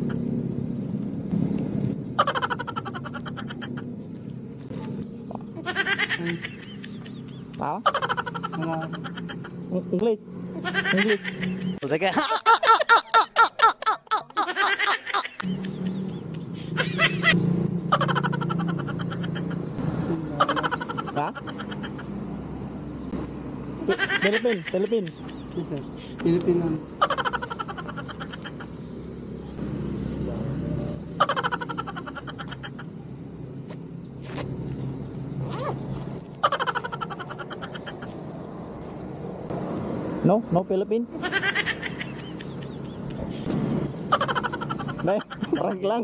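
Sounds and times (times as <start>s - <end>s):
man laughing hard: 5.6s - 7.1s, 7.9s - 9.5s, 10.6s - 16.1s, 16.7s - 17.4s, 18.0s - 19.6s, 20.4s - 22.1s, 23.8s - 25.7s, 31.2s - 32.9s, 44.2s - 45.9s.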